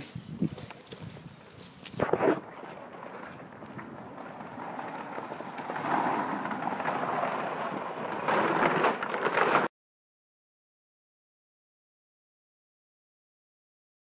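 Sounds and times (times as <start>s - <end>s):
dry dog food pattering: 0.0s - 2.0s.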